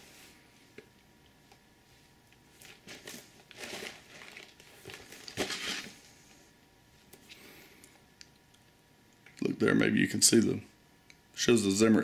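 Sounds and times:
plastic wrap crinkling: 0:02.6 - 0:06.0.

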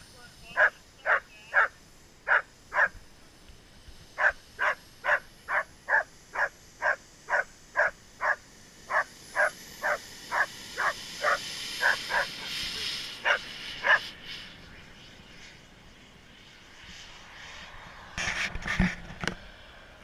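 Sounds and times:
faint high whine: 0:00.0 - 0:20.0
dog barking: 0:00.6 - 0:03.0, 0:04.2 - 0:12.3, 0:13.2 - 0:14.0.

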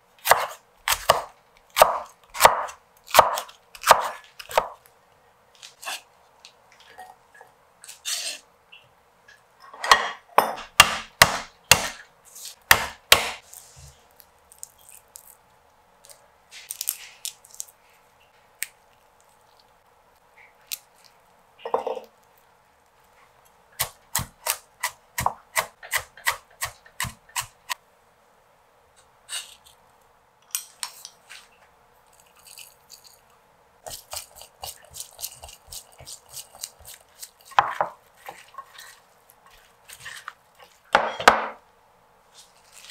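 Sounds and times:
cleaver striking cutting board: 0:12.7 - 0:13.4.

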